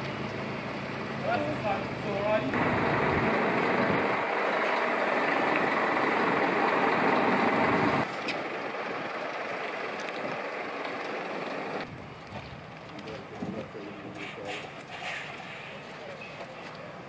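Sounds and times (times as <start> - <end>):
truck diesel engine running: 0.0 - 11.9.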